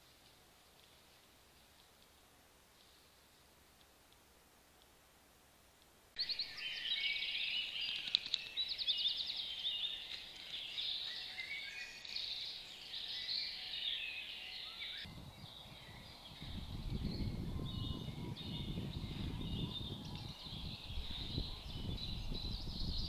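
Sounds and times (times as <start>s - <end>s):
songbirds chirping and trilling: 6.2s - 23.0s.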